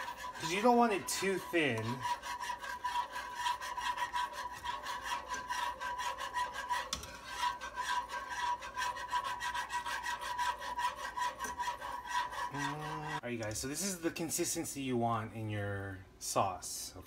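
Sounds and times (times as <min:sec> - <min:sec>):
whisk scraping in saucepan: 0:00.0 - 0:14.8.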